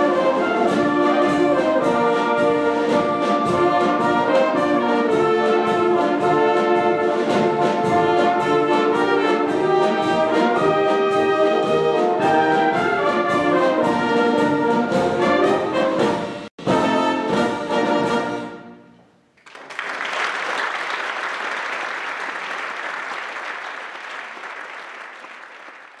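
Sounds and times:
wind band playing: 0:00.0 - 0:18.9
audience applause: 0:19.4 - 0:26.0.

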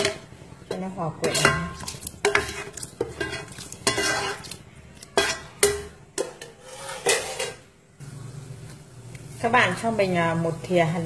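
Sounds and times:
metal cookware clanking: 0:00.0 - 0:07.7
scraping in a wok: 0:00.0 - 0:07.8.

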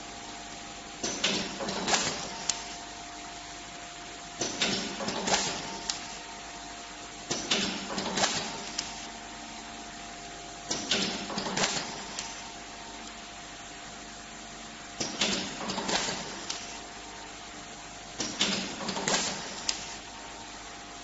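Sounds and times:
steady hum with faint tone: 0:00.0 - 0:21.0
cable tie gun whirring and clicking: 0:01.0 - 0:02.9, 0:04.4 - 0:06.2, 0:07.3 - 0:09.1, 0:10.7 - 0:13.2, 0:15.0 - 0:16.8, 0:18.2 - 0:20.1.

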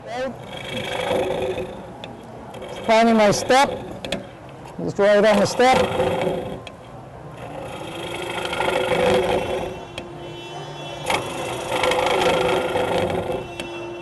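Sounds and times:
turning tool scraping wood: 0:02.6 - 0:04.4, 0:05.3 - 0:06.7, 0:07.4 - 0:10.1, 0:11.0 - 0:13.8
wood lathe humming: 0:07.4 - 0:14.0.

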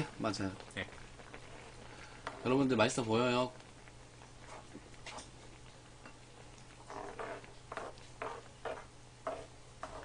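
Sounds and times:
soup simmering: 0:00.0 - 0:10.0
wooden spoons stirring in pan: 0:00.0 - 0:10.0.

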